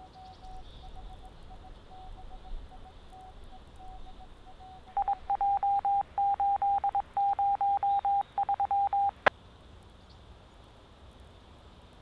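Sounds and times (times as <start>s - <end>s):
morse code beeps: 0.0s - 9.3s.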